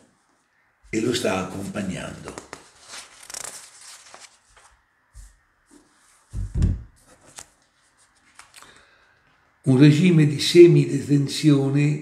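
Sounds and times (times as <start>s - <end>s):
paper pages rustling: 1.8s - 6.4s, 7.0s - 8.8s.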